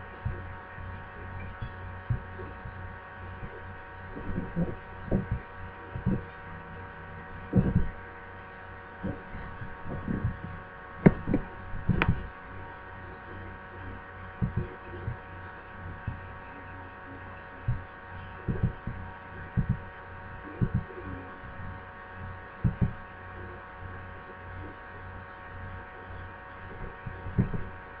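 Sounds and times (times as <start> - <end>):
soft low thumps: 0.0 - 8.1, 9.0 - 13.4, 14.3 - 16.5, 17.6 - 21.8, 22.6 - 23.0, 26.8 - 27.8
electrical hum with whining tones: 0.0 - 28.0.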